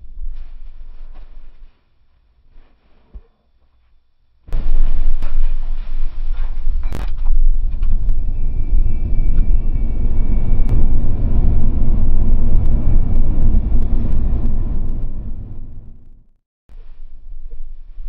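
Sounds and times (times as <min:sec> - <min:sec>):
faint high whine: 0:04.6 - 0:16.2
low rumble of tyres and road: 0:04.6 - 0:16.3.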